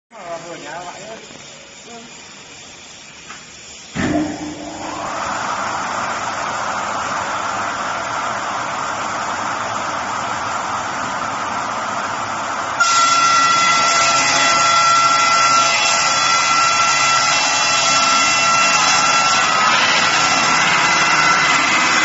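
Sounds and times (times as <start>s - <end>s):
circular saw whirring: 0.3s - 22.0s
high ringing saw whines: 12.8s - 22.0s.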